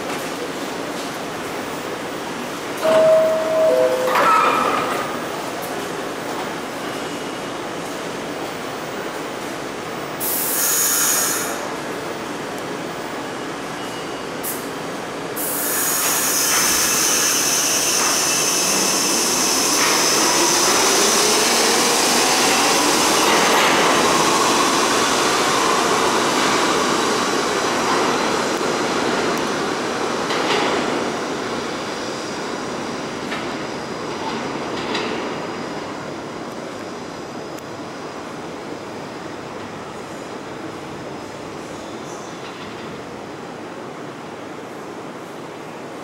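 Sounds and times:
subway traction motors whining: 0.0 - 46.0
air hissing: 10.2 - 11.6.

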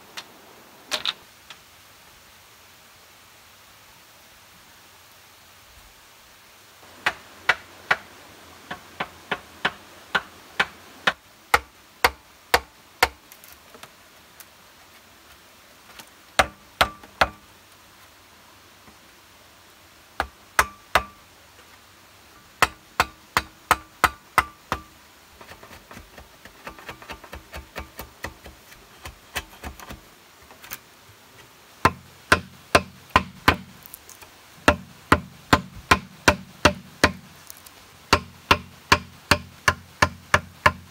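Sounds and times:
machete chopping bamboo: 9.0 - 13.2, 16.4 - 17.4, 20.2 - 21.2, 22.6 - 30.0, 31.8 - 33.8, 34.6 - 40.9.

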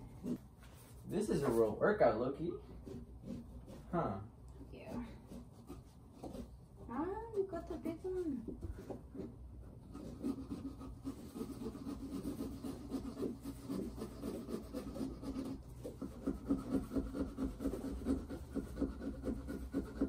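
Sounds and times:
tool sawing through pumpkin rind: 2.4 - 7.1, 9.1 - 20.0.

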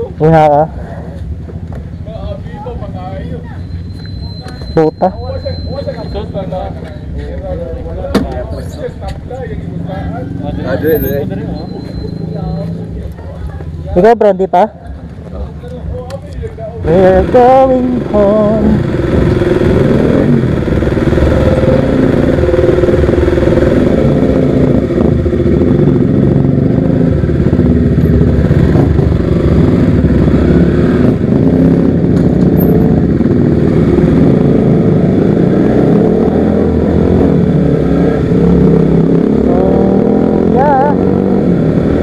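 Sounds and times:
motorcycle engine running: 14.9 - 42.0.

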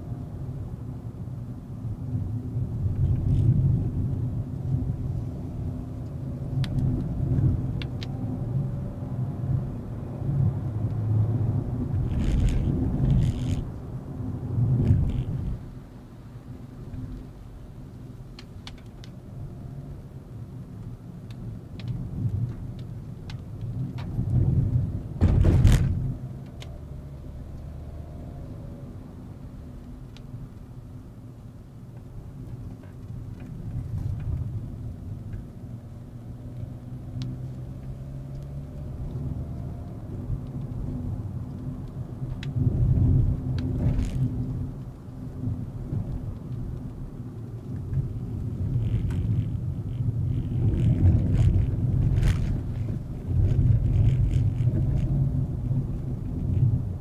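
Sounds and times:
car engine hum: 0.0 - 57.0
tyre rumble: 25.2 - 26.1.

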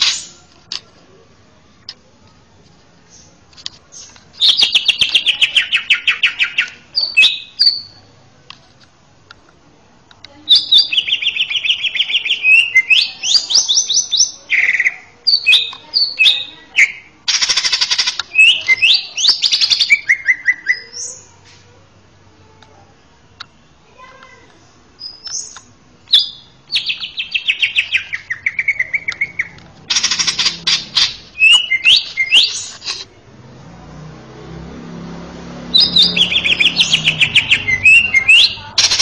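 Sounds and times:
bird singing trills and whistles: 3.9 - 8.0, 10.5 - 21.3, 25.0 - 33.0, 35.7 - 39.0.

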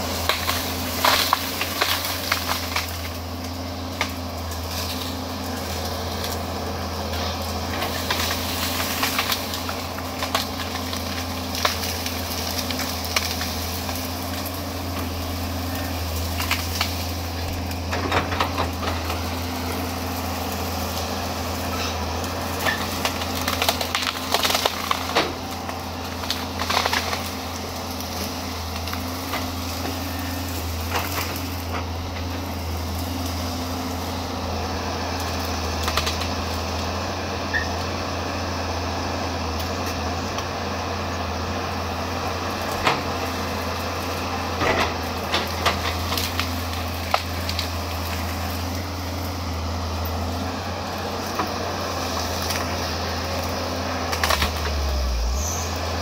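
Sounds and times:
branches cracking and snapping: 0.0 - 56.0
excavator diesel engine: 0.0 - 56.0.

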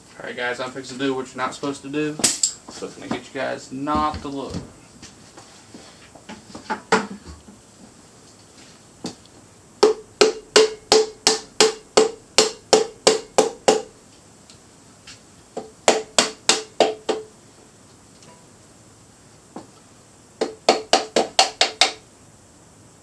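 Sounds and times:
hammer striking metal: 9.8 - 13.9.

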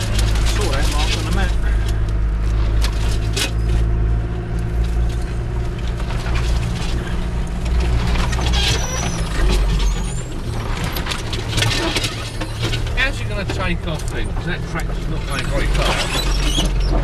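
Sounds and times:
branches scraping car body: 0.0 - 4.0
diesel engine running: 0.0 - 17.0.

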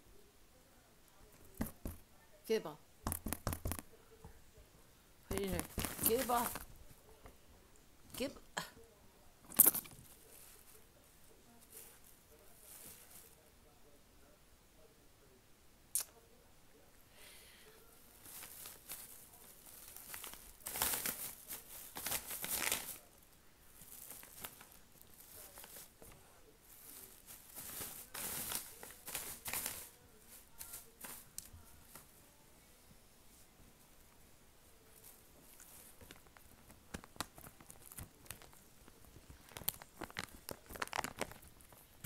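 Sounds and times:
packaging crinkling and tearing: 18.2 - 23.1, 23.8 - 25.9, 35.6 - 42.0.

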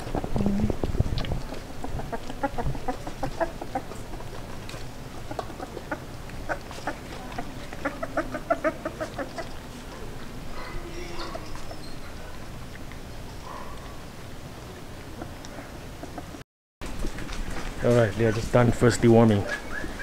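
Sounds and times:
puppies squeaking and grunting: 0.0 - 14.0, 15.1 - 16.4, 19.4 - 20.0
puppies lapping and smacking: 0.0 - 20.0.

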